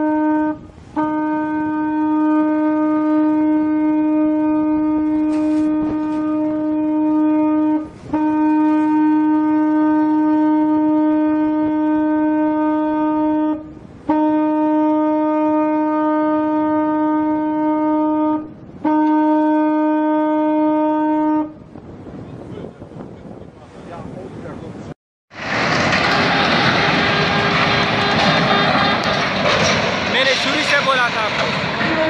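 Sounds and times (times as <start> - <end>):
ship's horn blasts: 0.0 - 23.4, 26.1 - 29.3, 31.8 - 32.0.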